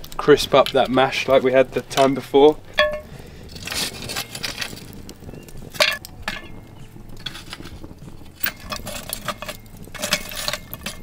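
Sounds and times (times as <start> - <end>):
coals knocking on iron lid: 0.6 - 11.0
metal tongs clinking and scraping: 2.8 - 4.9, 5.8 - 6.6, 7.2 - 7.8, 8.4 - 11.0.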